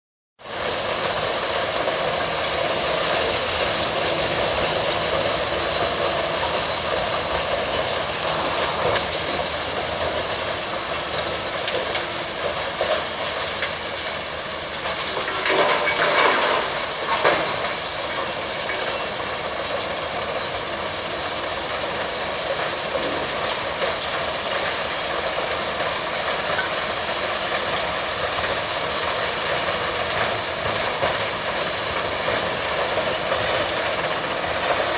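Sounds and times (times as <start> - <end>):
rubble crusher mechanical din: 0.6 - 34.9.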